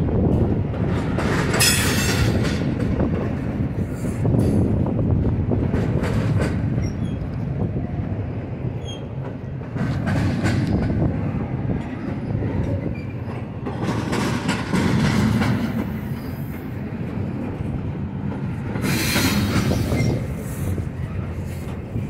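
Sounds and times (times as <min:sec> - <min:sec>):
train wheels rumbling on rail: 0:00.0 - 0:22.0
clicking over rail joints: 0:00.2 - 0:08.2, 0:08.8 - 0:22.0
high hissing wheel noise: 0:18.8 - 0:20.7.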